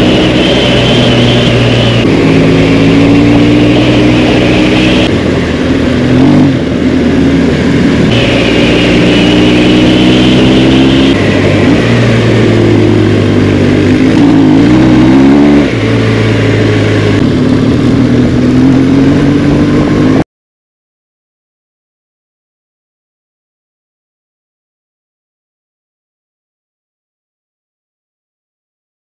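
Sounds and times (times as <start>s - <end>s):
motorcycle engine revving: 0.0s - 20.2s.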